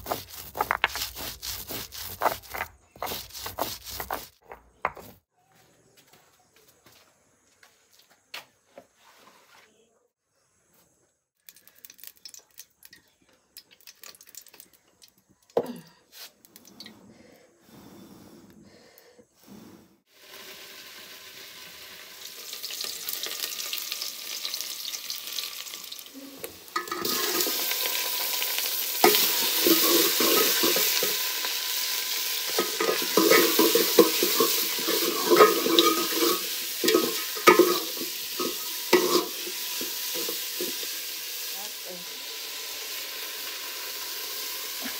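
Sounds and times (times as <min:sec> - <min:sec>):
oil hissing and sizzling: 0:00.0 - 0:04.3, 0:20.0 - 0:44.9
pots knocking and clicking: 0:26.7 - 0:27.6, 0:29.0 - 0:31.2, 0:32.5 - 0:40.9
spoon scraping and clinking pot: 0:26.8 - 0:27.7, 0:29.0 - 0:31.3, 0:32.5 - 0:40.8.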